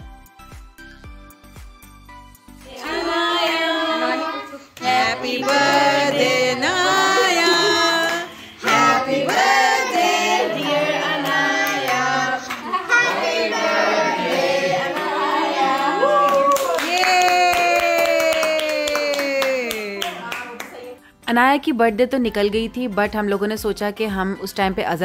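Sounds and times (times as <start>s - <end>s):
group singing a celebration song: 2.5s - 16.4s.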